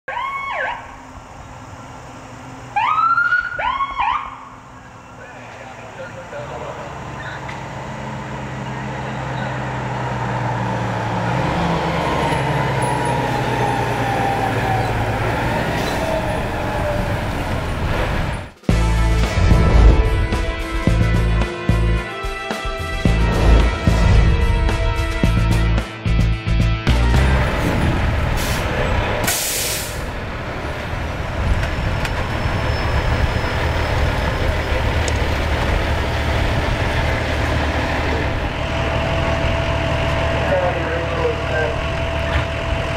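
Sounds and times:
fire engine driving past: 0.1s - 22.1s, 22.7s - 25.8s, 26.9s - 42.9s
air brake hiss: 28.4s - 30.1s.

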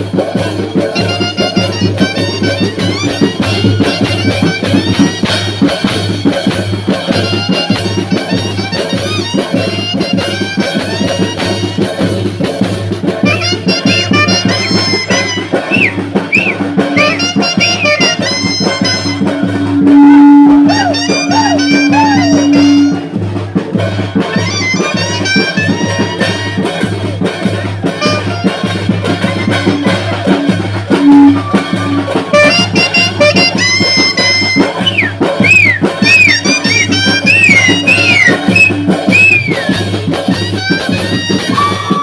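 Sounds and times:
drums keeping a beat: 0.0s - 42.0s
brass band music: 0.8s - 42.0s
horn holding a long note: 17.0s - 23.2s, 30.9s - 39.6s.

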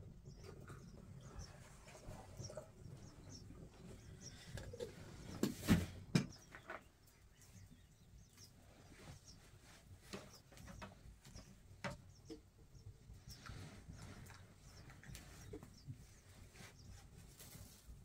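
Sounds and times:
faint bird chirps: 0.2s - 5.4s.

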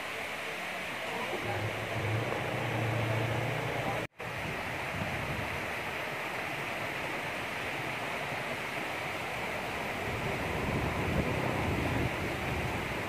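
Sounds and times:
waterfall rushing onto rock: 0.0s - 13.0s
low hum: 1.2s - 4.1s.

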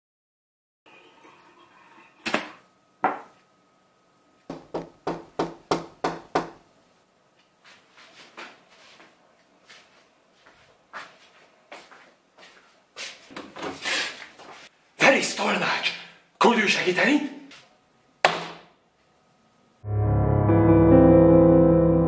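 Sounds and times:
knocking: 4.5s - 6.6s.

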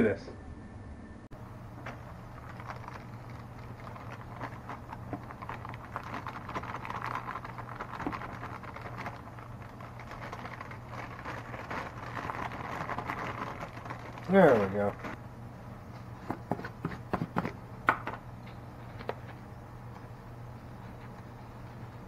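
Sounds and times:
steady low hum: 0.0s - 22.0s
dry mix pouring from crinkling bag: 1.8s - 15.2s.

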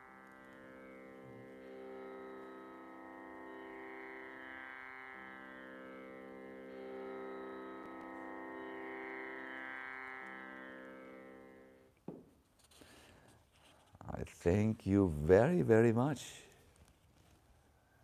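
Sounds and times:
soft drone music: 0.0s - 11.8s.

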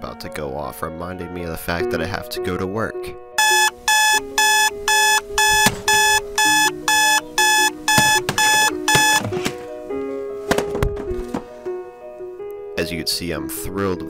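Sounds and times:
alarm clock electronic beeps: 3.4s - 9.3s.

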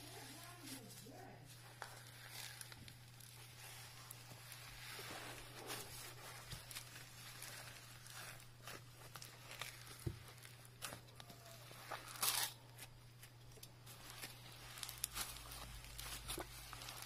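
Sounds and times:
slime beads crackling: 0.0s - 17.0s
slime squishing: 0.0s - 17.0s.

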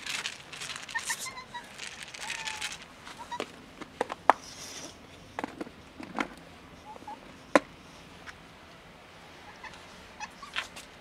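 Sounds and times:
plastic container rustling: 0.0s - 3.5s.

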